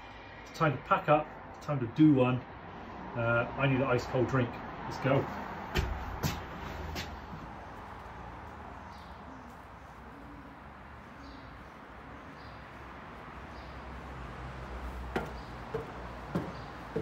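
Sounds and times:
sharp knocks: 5.7s - 7.2s, 15.1s - 17.0s.

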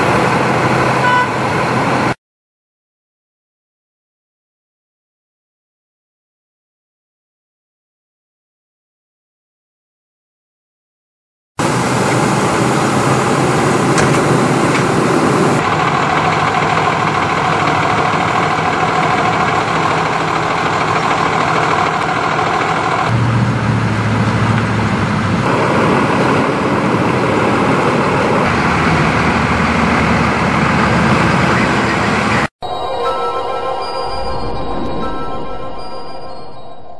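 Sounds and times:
truck engines idling: 0.0s - 2.2s, 11.6s - 32.5s.

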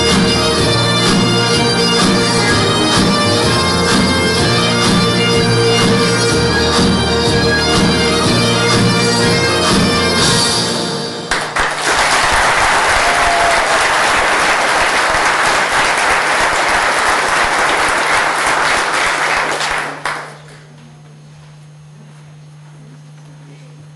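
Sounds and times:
bagpipe music: 0.0s - 11.3s
audience applauding: 11.3s - 20.7s.

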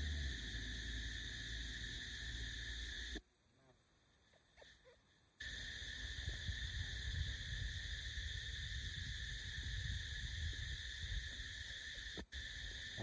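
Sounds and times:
uneven low rumble: 0.0s - 3.2s
insects droning: 0.0s - 13.0s.

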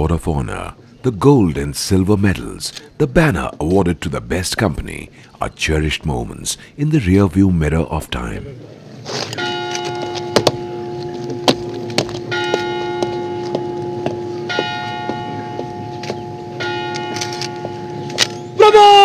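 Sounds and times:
low bell-like note: 9.4s - 18.5s
higher chimes struck: 9.4s - 18.6s.

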